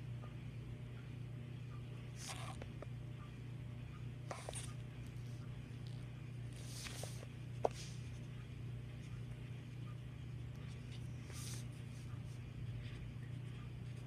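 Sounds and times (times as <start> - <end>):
steady low hum: 0.0 - 14.0
marker scratching on paper: 10.6 - 12.1.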